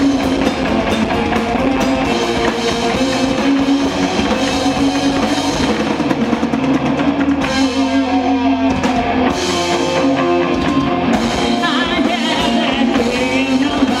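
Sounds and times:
live rock band playing: 0.0 - 14.0
woman singing: 11.3 - 14.0.

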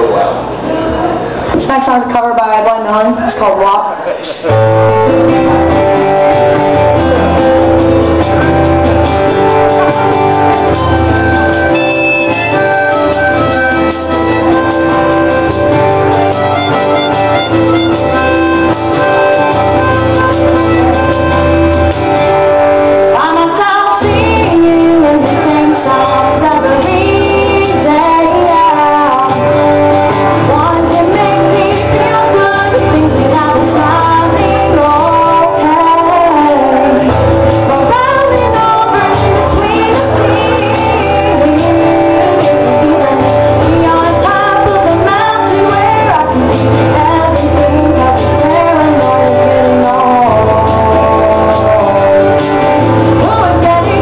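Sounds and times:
acoustic guitar: 0.0 - 54.0
woman singing: 23.0 - 54.0.

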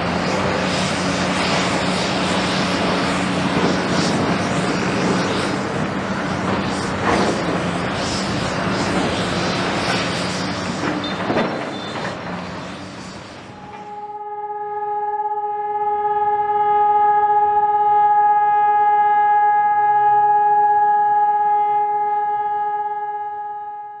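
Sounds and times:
machinery noise: 0.0 - 23.4
steady held tone: 13.2 - 24.0.

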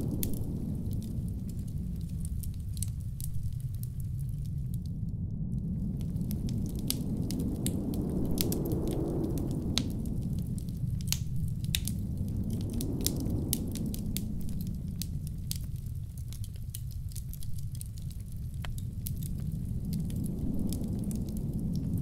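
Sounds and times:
blizzard wind rumble: 0.0 - 22.0
fire pops and snaps: 0.0 - 22.0
wood fire crackling: 0.0 - 22.0.

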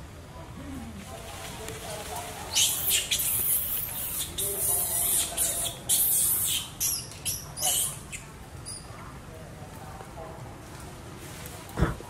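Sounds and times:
monkeys squealing: 2.5 - 8.9.

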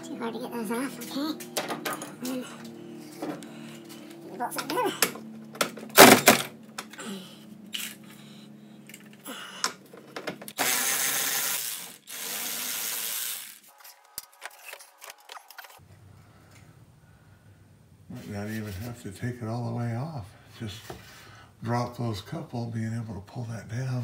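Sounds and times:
power tool spinning bolt: 10.5 - 13.7.

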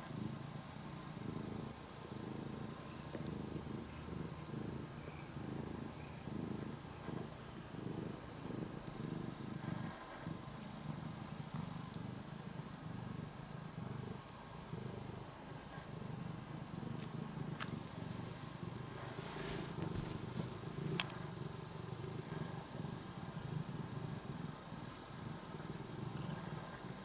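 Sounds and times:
cat purring: 0.0 - 27.0
rustling of bed and box: 18.1 - 20.8.

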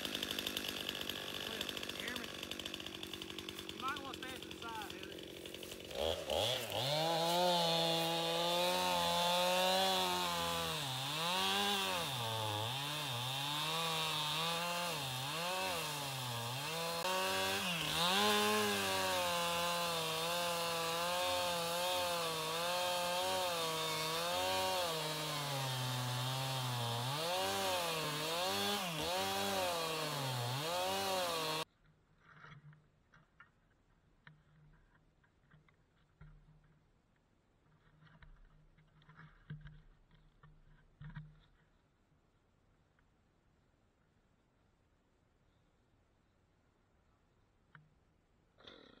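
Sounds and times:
chainsaw cutting wood: 0.0 - 31.7.

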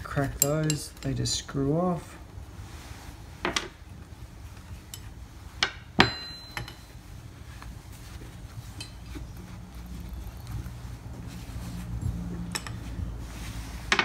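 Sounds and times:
spanners clinking against metal engine: 0.0 - 1.3, 6.0 - 7.0, 12.0 - 13.0.

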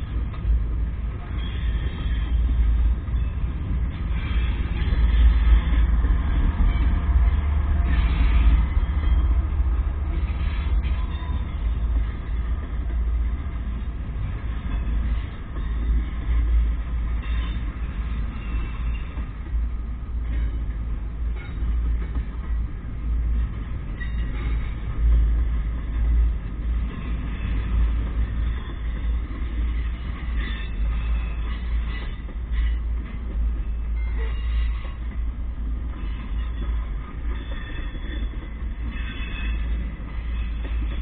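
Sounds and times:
diesel locomotive passing: 0.0 - 41.0
train cars rumbling on rails: 0.0 - 41.0.

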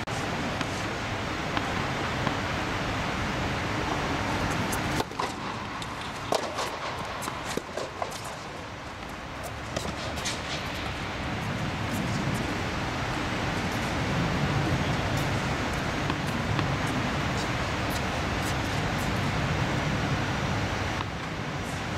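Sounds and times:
rushing background noise: 0.0 - 21.9
racket hitting tennis ball: 4.4 - 12.6, 15.2 - 19.2
tennis ball bouncing: 4.5 - 12.6, 15.2 - 19.1.

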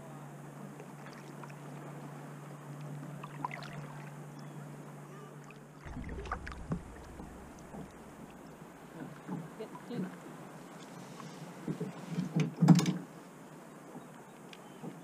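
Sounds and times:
paddle splashing in water: 0.8 - 2.1, 3.1 - 4.2, 5.4 - 12.3.

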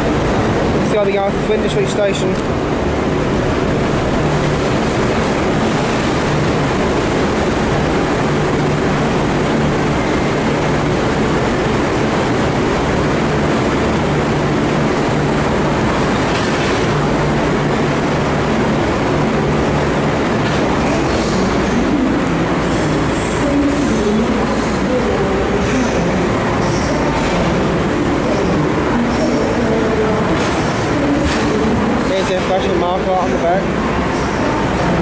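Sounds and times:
train wheels rolling on rails: 0.0 - 35.0.

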